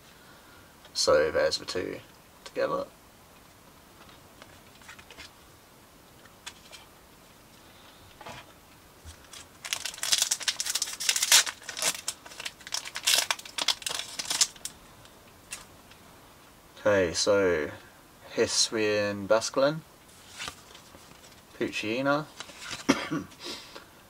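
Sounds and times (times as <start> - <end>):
foil wrapper crinkling and tearing: 9.2 - 14.8.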